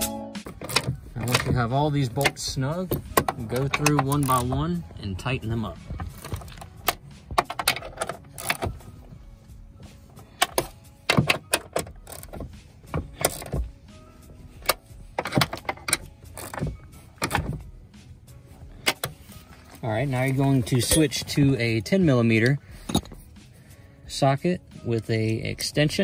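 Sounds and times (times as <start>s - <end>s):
wrench clicking on bolts: 10.4s - 13.6s, 14.6s - 17.4s.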